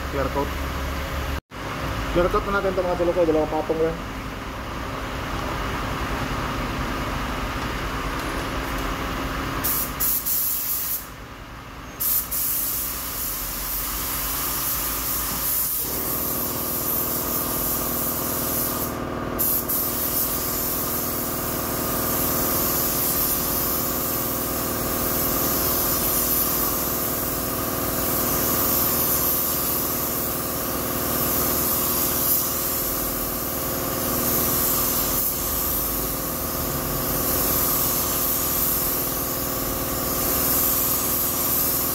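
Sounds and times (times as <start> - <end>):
paint spray gun hissing: 9.6 - 11.1, 12.0 - 41.9.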